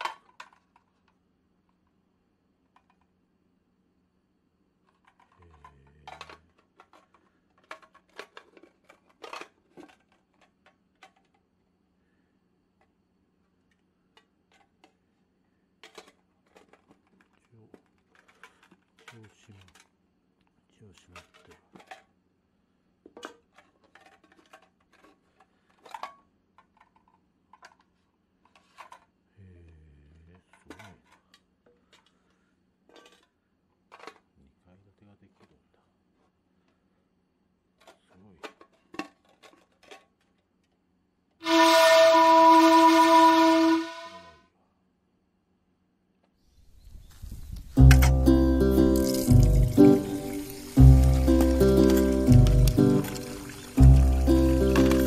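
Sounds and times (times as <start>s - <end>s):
low wobbling tone: 47.8s - 50.2s
metal tins clinking: 47.9s - 55.0s.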